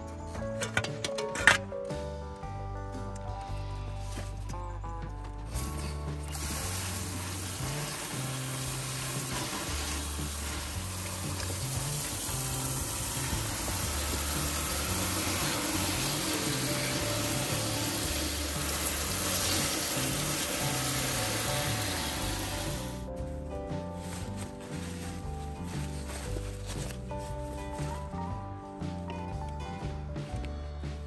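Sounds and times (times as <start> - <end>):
background music with bass: 0.0 - 31.0
water spraying from hose nozzle: 5.6 - 23.1.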